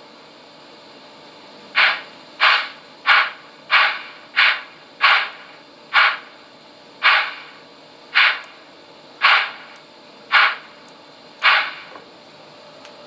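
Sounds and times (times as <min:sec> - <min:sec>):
hissing steam chuffs from speaker: 0:01.7 - 0:06.4, 0:07.0 - 0:08.6, 0:09.2 - 0:10.8.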